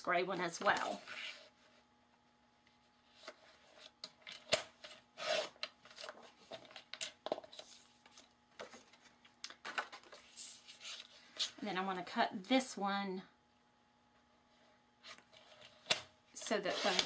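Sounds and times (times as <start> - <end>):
paper rustling and scraping: 4.8 - 11.6, 16.4 - 17.0.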